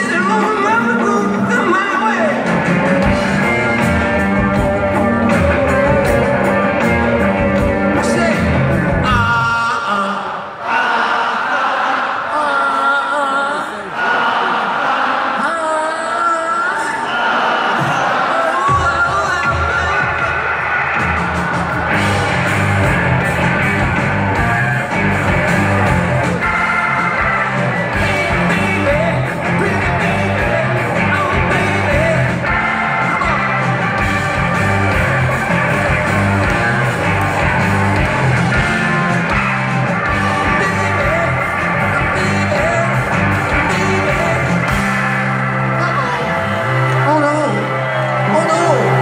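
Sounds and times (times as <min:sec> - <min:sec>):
electric guitars: 0:00.0 - 0:09.6, 0:19.4 - 0:49.0
bass: 0:00.0 - 0:09.8, 0:18.8 - 0:49.0
drums: 0:00.0 - 0:10.1, 0:17.7 - 0:49.0
male lead singer: 0:00.0 - 0:10.6, 0:25.4 - 0:34.6, 0:40.0 - 0:45.1
keyboards: 0:00.0 - 0:11.9, 0:16.2 - 0:49.0.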